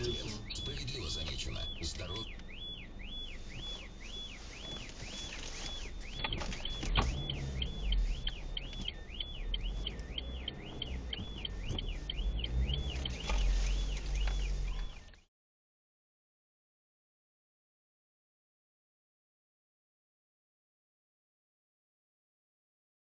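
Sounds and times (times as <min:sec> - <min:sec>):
low rumble: 0:00.0 - 0:15.2
car alarm siren wailing: 0:00.0 - 0:15.3.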